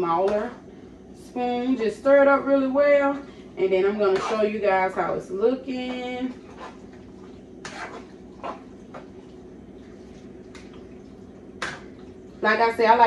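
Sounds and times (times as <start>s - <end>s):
steady low hum: 0.0s - 13.0s
spoon scraping a cooking pot: 4.1s - 4.5s, 5.8s - 7.0s, 7.6s - 8.7s.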